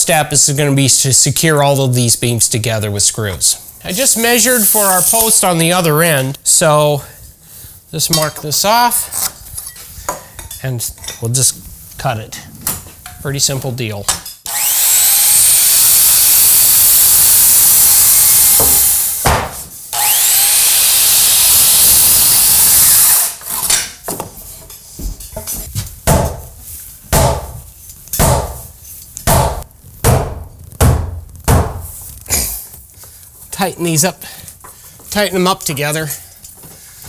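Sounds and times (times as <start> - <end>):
circular saw cutting wood: 3.9 - 5.5, 14.5 - 19.2, 19.9 - 23.5.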